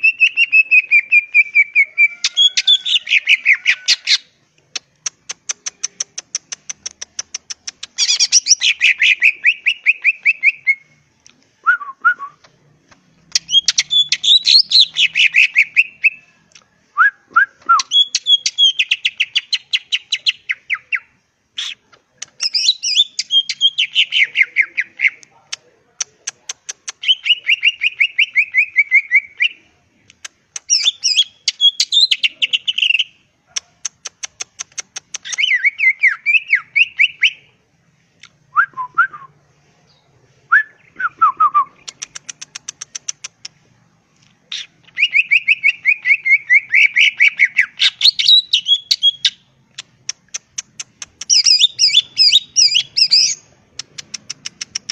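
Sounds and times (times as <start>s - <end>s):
bird clicks: 4.6s - 8.1s, 30.1s - 31.0s, 33.5s - 35.5s, 41.8s - 43.6s, 49.7s - 51.6s, 53.7s - 54.9s.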